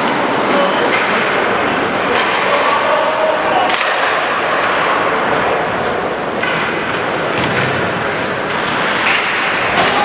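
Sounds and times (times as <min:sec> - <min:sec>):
hockey sticks and puck knocking: 0:00.8 - 0:02.8, 0:03.6 - 0:05.5, 0:06.2 - 0:10.0
skates hissing on ice: 0:08.4 - 0:09.6.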